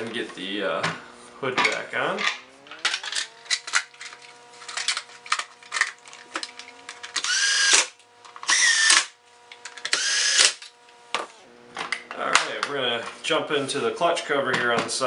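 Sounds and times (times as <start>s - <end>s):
cordless drill driving screws: 7.1s - 10.7s.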